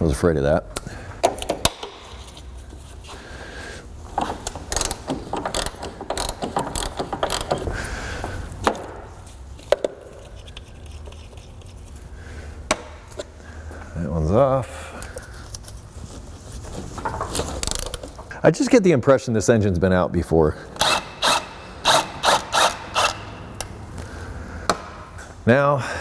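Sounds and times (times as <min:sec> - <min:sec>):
hand ratchet clicking: 0:04.2 - 0:07.8, 0:20.8 - 0:23.7.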